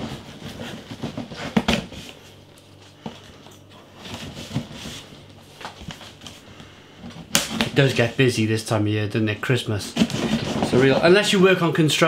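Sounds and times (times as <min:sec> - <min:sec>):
cardboard rustling and bumps: 0:00.0 - 0:02.3, 0:04.0 - 0:06.3, 0:09.9 - 0:11.2.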